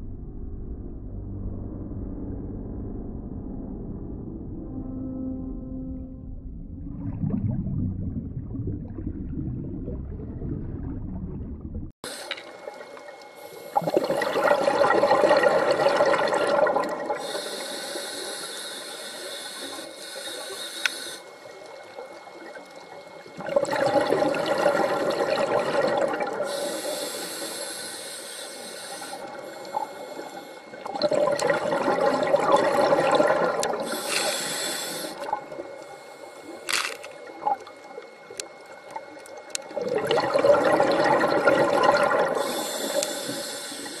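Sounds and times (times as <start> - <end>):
low underwater rumble: 0.0 - 12.0
exhaled bubbles gurgling: 6.7 - 18.7, 21.3 - 44.0
regulator inhale hiss: 12.1 - 12.5, 13.4 - 13.9, 17.2 - 21.5, 26.4 - 30.8, 33.8 - 37.0, 42.3 - 44.0.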